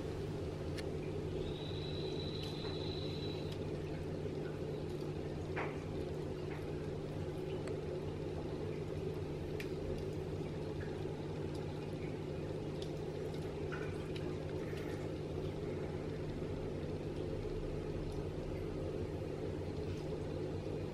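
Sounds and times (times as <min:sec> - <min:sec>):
aquarium equipment humming: 0:00.0 - 0:20.9
faint high whistle: 0:01.4 - 0:03.6.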